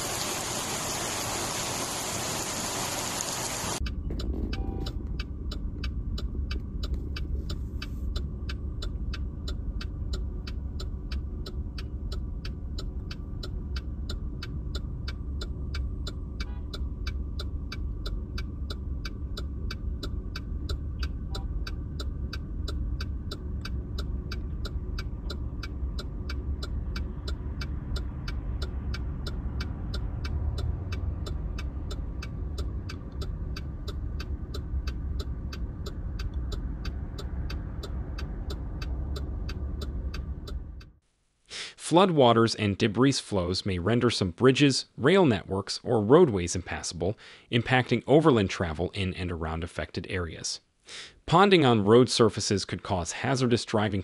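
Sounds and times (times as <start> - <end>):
sharp ticking: 3.7 - 41.0
car cabin rumble: 3.8 - 40.9.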